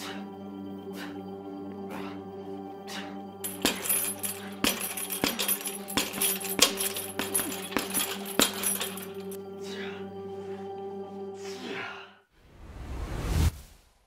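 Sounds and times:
music drone: 0.0s - 4.6s, 9.2s - 11.8s.

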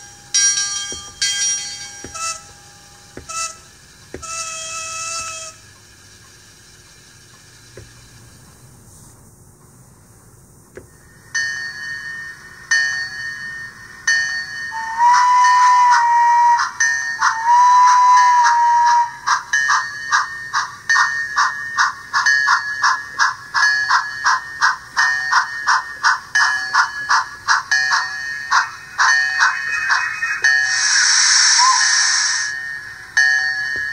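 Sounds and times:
bell ringing: 0.0s - 3.6s
model train whistle blasts: 1.6s - 5.6s, 14.7s - 19.3s, 30.4s - 32.6s.

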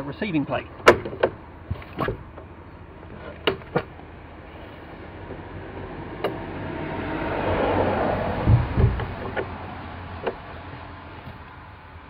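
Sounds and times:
road traffic: 0.0s - 12.0s
wooden gate swinging open: 0.8s - 2.5s, 8.3s - 9.6s.

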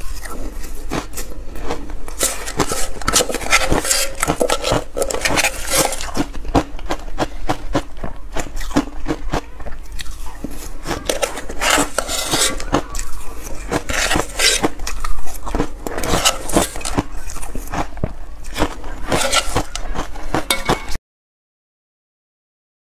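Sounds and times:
ice crunching: 0.0s - 21.0s
spoon scraping metal bowl: 2.1s - 6.5s, 10.4s - 15.1s, 15.8s - 17.1s, 18.6s - 21.0s.

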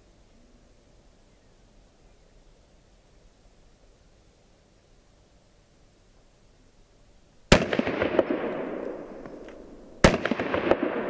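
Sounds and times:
pistol shots echoing: 7.5s - 11.0s.

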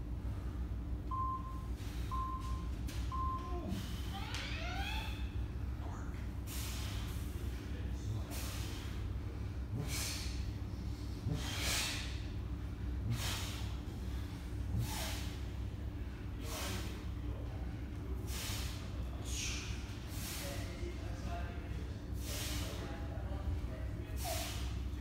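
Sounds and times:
steady low hum: 0.0s - 25.0s
man's sharp forceful breaths: 6.4s - 17.1s, 18.2s - 20.7s, 22.2s - 22.8s, 24.2s - 24.8s.

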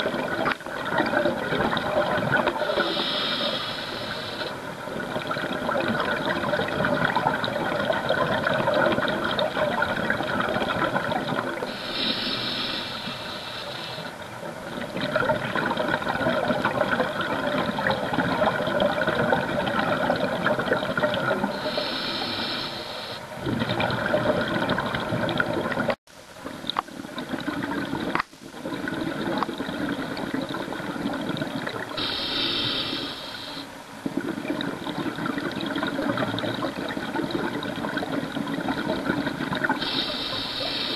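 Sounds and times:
exhaust bubbling underwater: 0.0s - 13.0s, 14.4s - 22.3s, 23.4s - 26.0s, 27.0s - 33.0s, 33.7s - 40.9s
regulator inhalation hiss: 2.6s - 4.7s, 11.6s - 14.2s, 21.5s - 23.4s, 32.0s - 33.8s, 39.8s - 40.9s.

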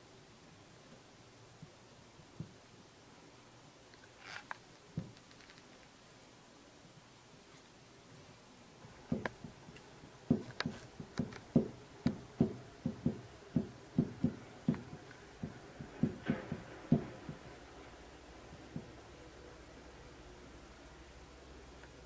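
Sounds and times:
hot iron tapping on paper: 10.3s - 17.5s.

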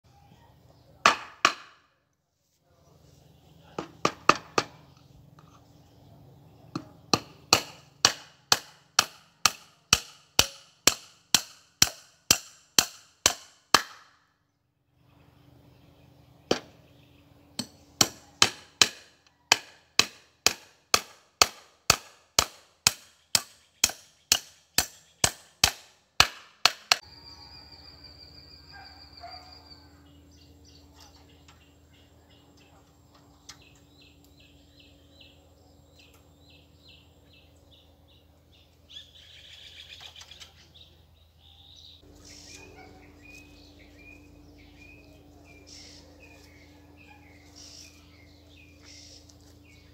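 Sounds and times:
birds chirping and trilling: 2.7s - 8.0s, 14.5s - 20.2s, 22.6s - 25.7s, 27.0s - 49.9s
hammer blows on wooden post: 6.7s - 14.1s.

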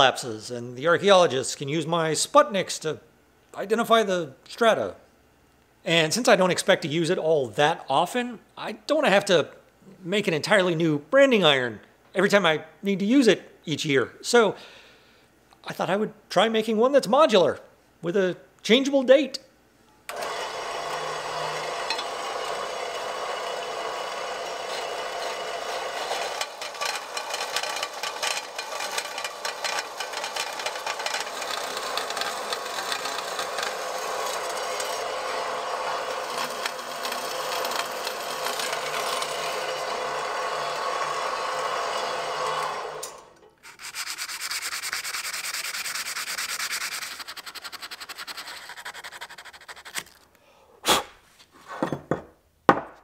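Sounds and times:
scroll saw blade rasping: 24.5s - 35.2s, 36.0s - 39.6s, 43.6s - 50.2s
abrasive paper rubbing metal: 43.6s - 50.2s.

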